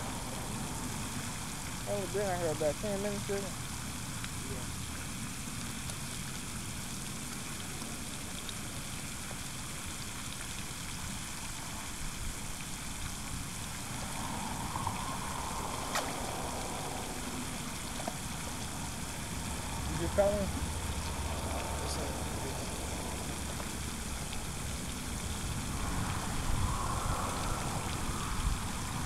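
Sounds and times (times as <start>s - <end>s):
low rumble: 13.4s - 29.0s
outdoor rushing noise: 13.4s - 29.0s.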